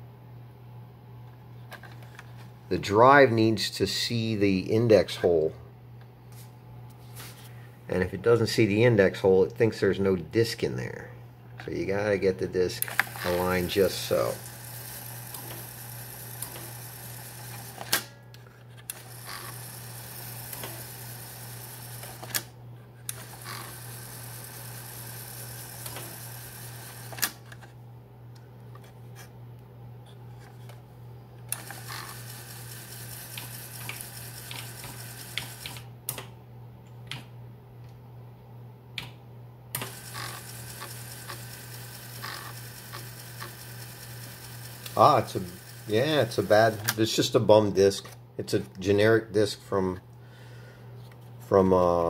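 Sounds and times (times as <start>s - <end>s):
floppy drive motor hum: 11.6s - 29.0s, 30.4s - 36.4s, 39.0s - 47.3s
disk hiss: 42.4s - 47.0s.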